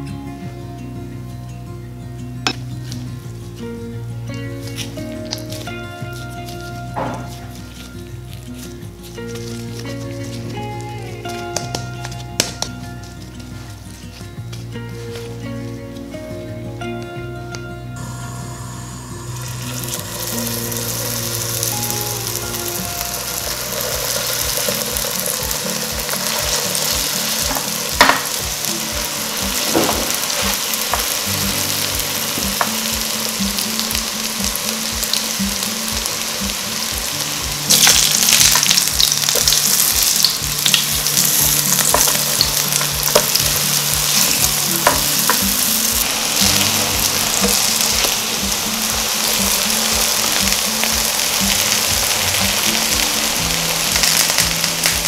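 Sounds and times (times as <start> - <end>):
soft background music: 0.0 - 55.0
patties sizzling in oil: 4.6 - 13.8, 18.0 - 55.0.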